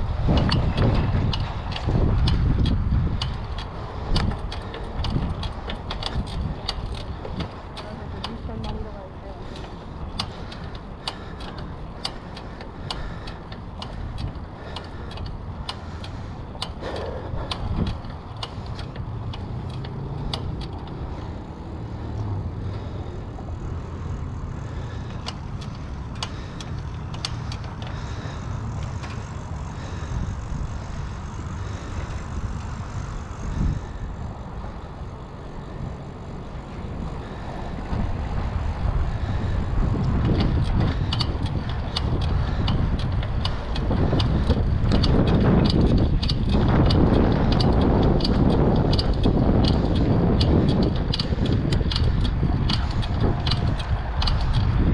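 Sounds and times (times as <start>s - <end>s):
bicycle tyre noise: 0.0s - 54.9s
bike clicks and rattles: 0.0s - 54.9s
wind buffeting microphone: 0.0s - 54.9s.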